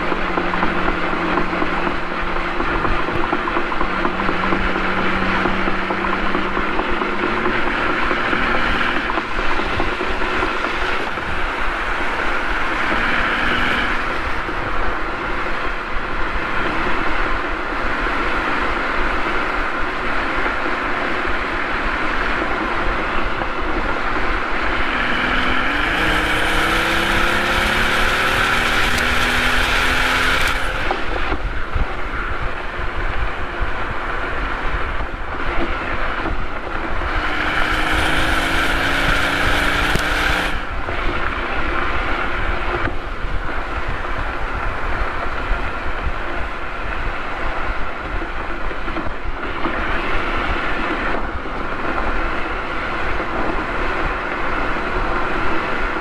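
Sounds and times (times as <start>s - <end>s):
car engine accelerating: 0.0s - 56.0s
road and wind noise: 0.0s - 56.0s.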